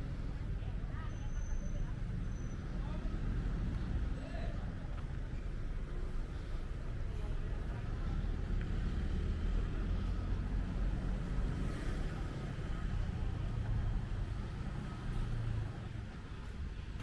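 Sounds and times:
street noise: 0.0 - 17.0.

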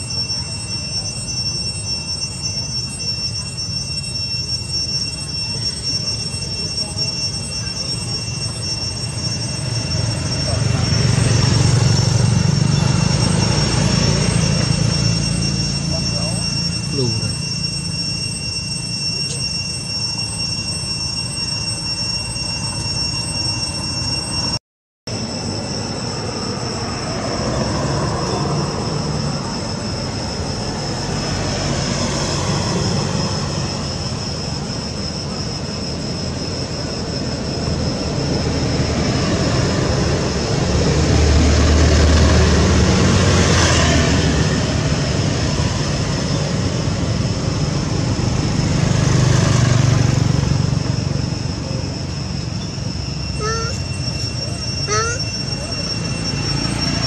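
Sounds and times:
thin high whine: 0.0 - 57.0
rumbling background noise: 25.2 - 57.0.

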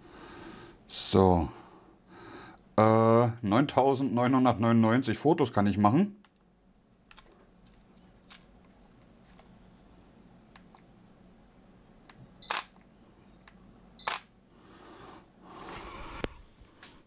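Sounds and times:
camera beep: 12.4 - 12.7, 14.0 - 14.3
camera shutter click: 12.4 - 12.8, 14.0 - 14.3.

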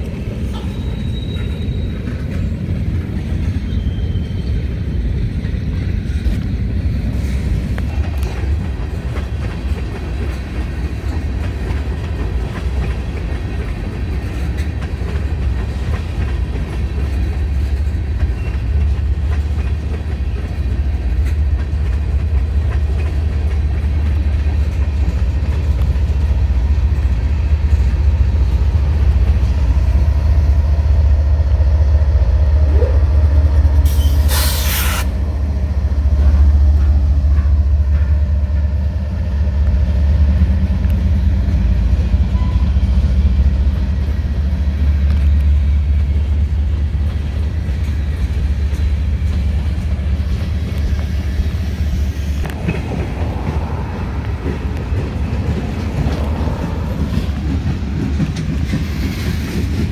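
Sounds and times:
diesel locomotive engine drone: 0.0 - 59.9
freight train rumbling on rails: 0.0 - 59.9
burst of hiss: 33.9 - 35.2.

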